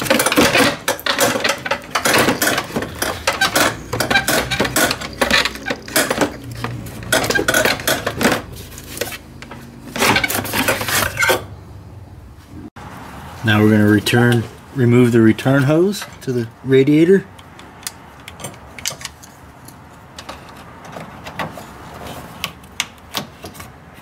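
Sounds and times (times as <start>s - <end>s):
plastic fan shroud rattling: 0.0s - 8.6s.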